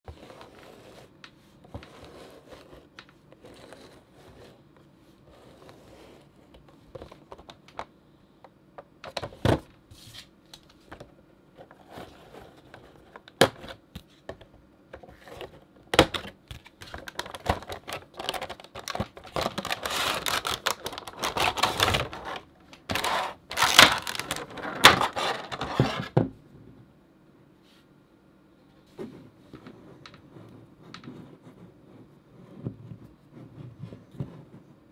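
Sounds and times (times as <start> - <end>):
cardboard and plastic packaging rustling: 15.0 - 26.2.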